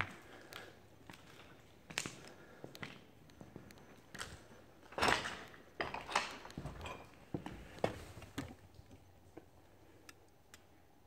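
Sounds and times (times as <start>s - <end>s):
footsteps on metal steps: 5.8s - 8.6s.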